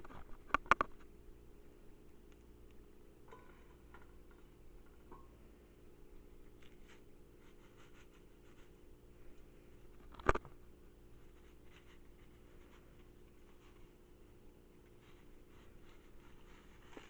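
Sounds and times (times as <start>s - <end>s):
low steady hum: 0.0s - 17.0s
wooden spoon scraping a pot: 3.3s - 5.4s, 11.1s - 17.0s.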